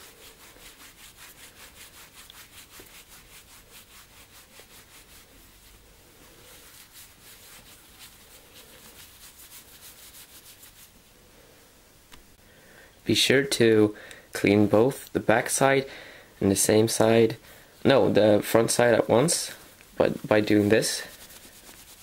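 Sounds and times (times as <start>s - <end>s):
cloth rubbing glass screen: 0.0s - 11.0s, 20.0s - 22.0s.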